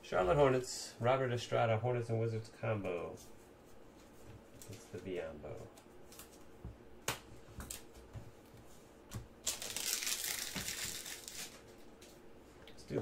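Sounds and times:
plastic wrapping crinkling and tearing: 0:09.4 - 0:11.7.

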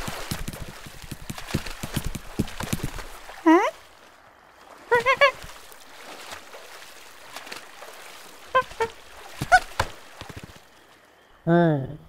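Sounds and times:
faint watery background noise: 0:00.0 - 0:12.0
squeaky cartoon vocal calls: 0:04.9 - 0:05.4, 0:08.6 - 0:09.7.

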